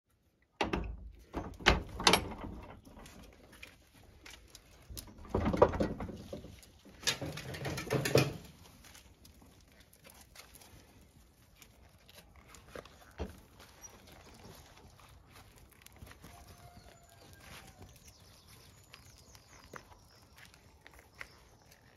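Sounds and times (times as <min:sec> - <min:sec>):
knocks and rustles: 0:00.6 - 0:09.0
puppies scampering on concrete: 0:02.1 - 0:21.9.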